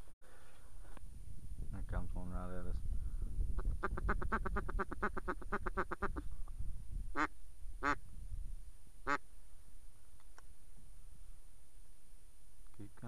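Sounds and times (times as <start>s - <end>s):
duck quacking: 3.8s - 6.2s.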